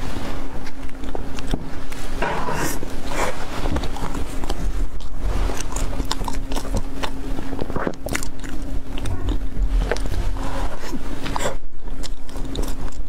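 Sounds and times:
chewing food mouth sounds: 0.6s - 2.6s, 3.7s - 13.0s.

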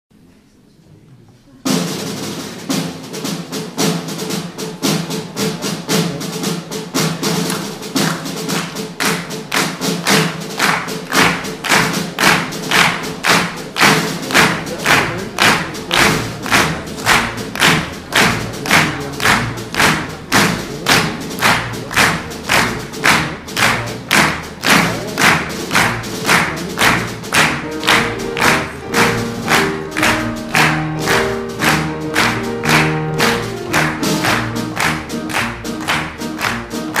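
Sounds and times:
steady percussive beat: 1.6s - 37.0s
piano chords: 10.1s - 37.0s.

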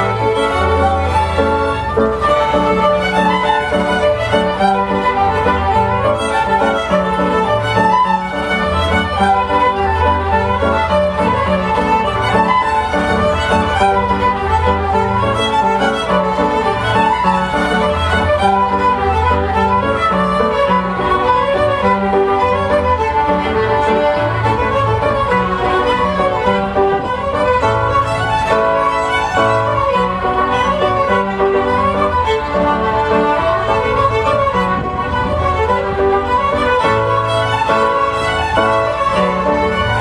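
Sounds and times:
plucked double bass: 0.0s - 40.0s
violins bowing a tune: 0.0s - 40.0s.

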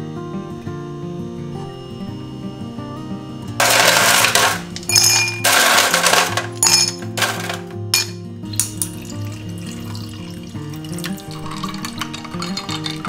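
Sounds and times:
soft background music: 0.0s - 13.0s
ice cubes clinking into glass: 3.6s - 13.0s.

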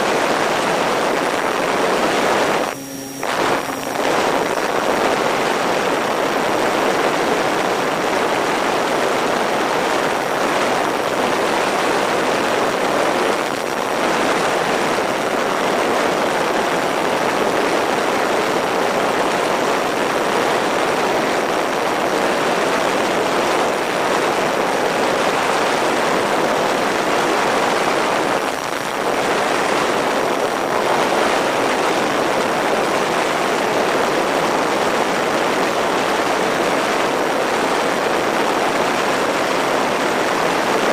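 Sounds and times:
airflow and propeller noise: 0.0s - 12.7s.

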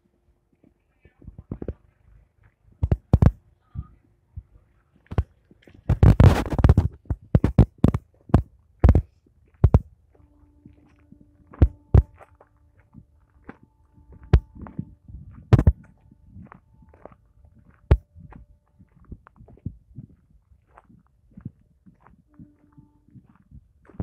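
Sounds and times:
faint steady hum: 0.0s - 24.0s
footsteps crunching on gravel: 5.0s - 24.0s.

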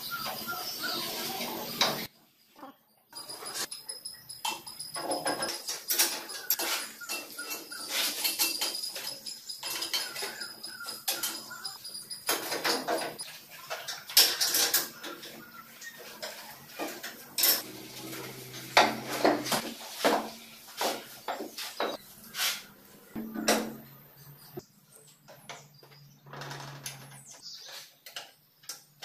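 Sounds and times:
metal parts clinking and knocking: 3.6s - 13.3s
sharp metal taps: 23.2s - 24.1s.

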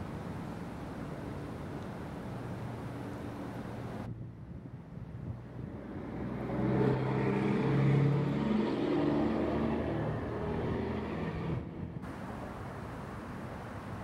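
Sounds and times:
vehicle engine humming: 9.5s - 14.0s.

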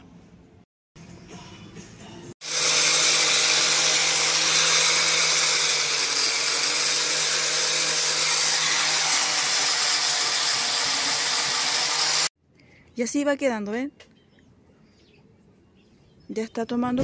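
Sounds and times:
angle grinder sanding wood: 2.4s - 12.3s.

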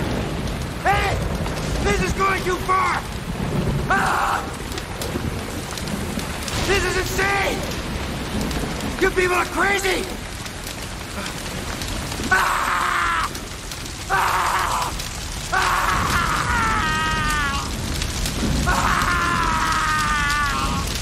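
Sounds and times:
steady rain: 0.0s - 21.0s
man screaming in anguish: 14.1s - 17.8s, 18.6s - 21.0s.

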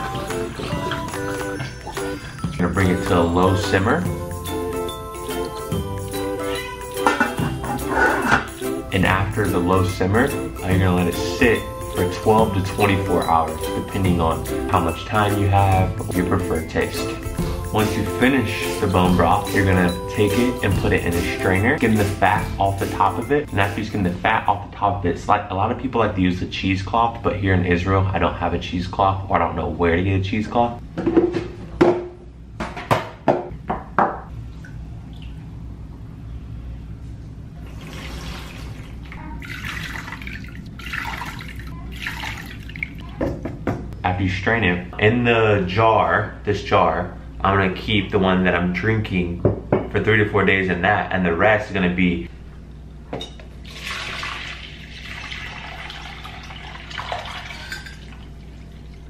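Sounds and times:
metal colander and containers clinking: 6.9s - 8.7s, 57.0s - 58.2s
broth pouring and splashing: 37.7s - 43.2s, 53.6s - 59.0s.

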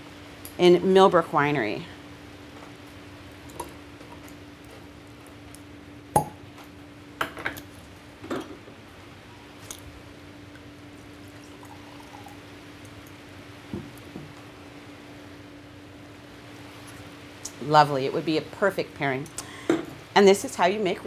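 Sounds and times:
steady low hum: 0.0s - 21.0s
wine pouring into glass: 11.0s - 12.5s.

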